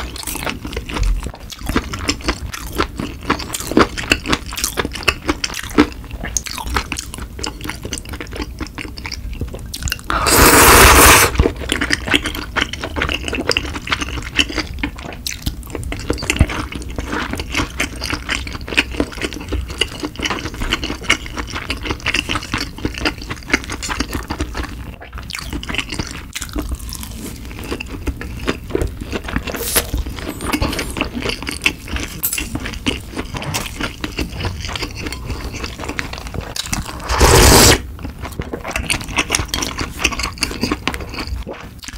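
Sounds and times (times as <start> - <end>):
close chewing with mouth clicks: 0.0 - 41.9
noodles slurped: 10.0 - 11.5, 28.4 - 37.9.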